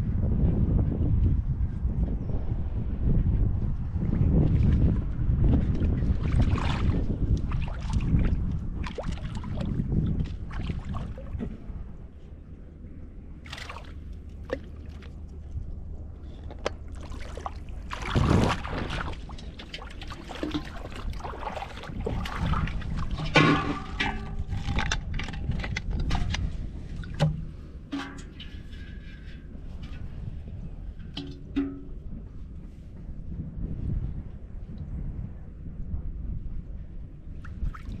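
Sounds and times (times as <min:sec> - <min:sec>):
steady low rumble: 0:00.0 - 0:38.0
river water sloshing and splashing: 0:05.7 - 0:11.7, 0:13.4 - 0:15.4, 0:16.6 - 0:30.0, 0:37.4 - 0:38.0
knocks and clatters of handling: 0:23.0 - 0:30.3.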